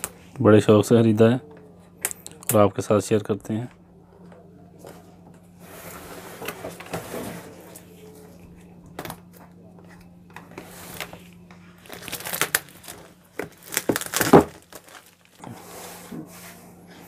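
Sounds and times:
plastic wrap crinkling and tearing: 10.6 - 15.5.

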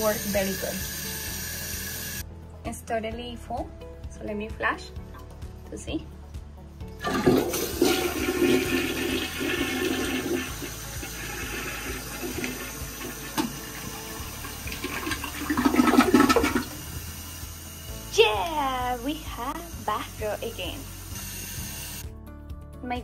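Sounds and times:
toilet flushing: 7.0 - 17.9.

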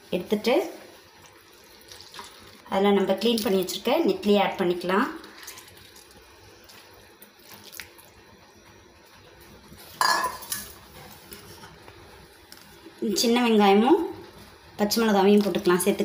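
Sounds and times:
wet rustle: 1.1 - 2.7, 5.2 - 8.1.

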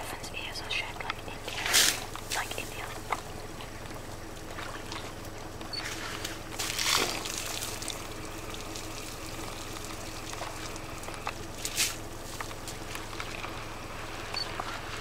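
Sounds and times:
low steady hum: 0.0 - 15.0
elephant splashing muddy water: 4.3 - 15.0.

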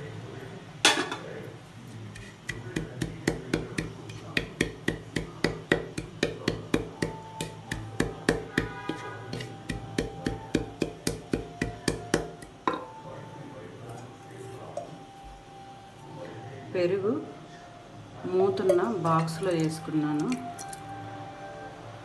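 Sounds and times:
wooden pestle pounding in clay pot: 2.2 - 12.8.

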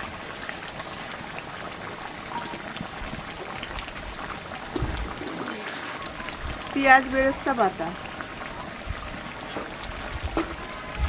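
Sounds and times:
curry bubbling and sizzling: 0.0 - 11.0.

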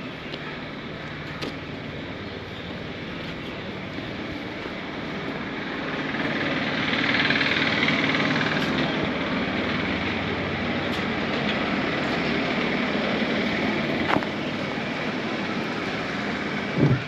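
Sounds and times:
vehicle engine noise: 0.0 - 17.0.

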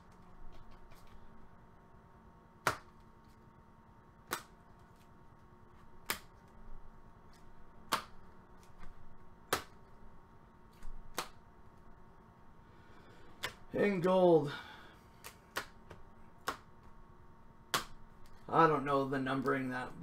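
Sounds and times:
cards shuffled in hand: 0.0 - 1.3.

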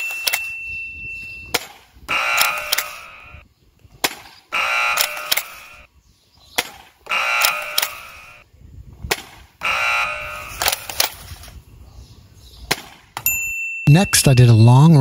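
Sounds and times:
toy blaster shots: 1.5 - 3.4, 4.0 - 5.9, 6.6 - 8.4, 9.1 - 11.2.

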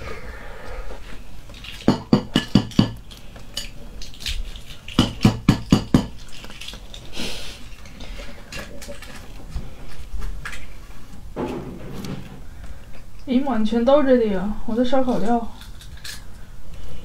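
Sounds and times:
eggshells tapped on ceramic plate: 1.8 - 3.0, 4.9 - 6.2.

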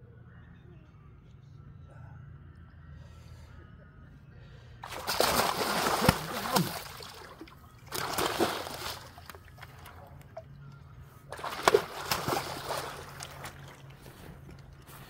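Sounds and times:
fish splashing in shallow water: 4.8 - 10.5, 11.3 - 14.9.

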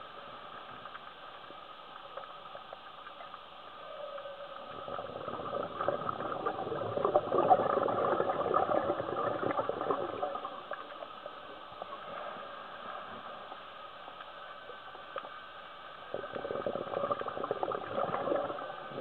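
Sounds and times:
faint ticks: 0.0 - 5.0, 10.4 - 16.5
underwater hiss: 0.0 - 19.0
underwater exhaled bubbles: 2.2 - 13.7, 16.0 - 19.0.

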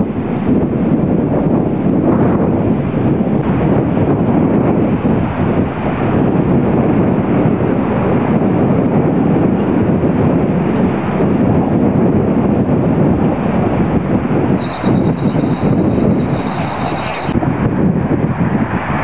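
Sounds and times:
low rumble of traffic: 0.0 - 19.0.

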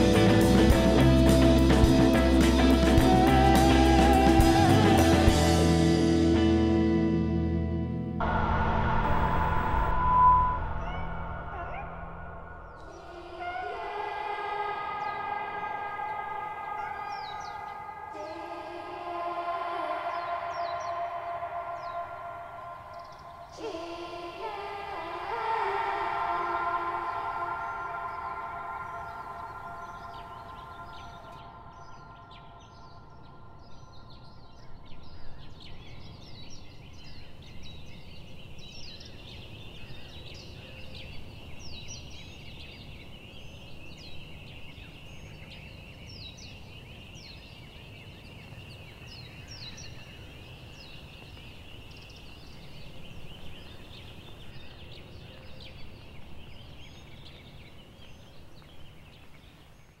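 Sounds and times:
low rumble: 7.6 - 13.4
high-pitched drone: 8.2 - 23.0
birds chirping: 8.7 - 60.0.

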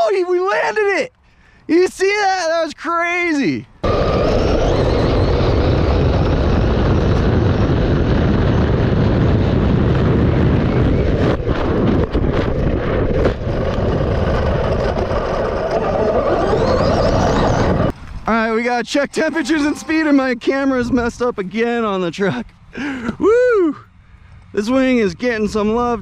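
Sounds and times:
rc car wind and tyre noise: 3.7 - 19.3
electric motor whine: 3.8 - 18.1.

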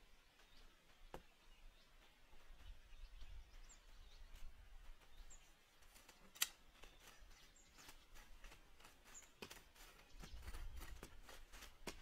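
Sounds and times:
faint high bird chirp: 0.0 - 5.6, 6.6 - 11.1
sharp clicks: 6.2 - 6.6.

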